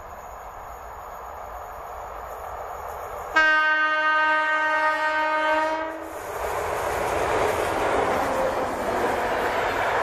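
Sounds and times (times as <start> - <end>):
train running past: 0.0 - 10.0
locomotive horn: 3.4 - 6.1.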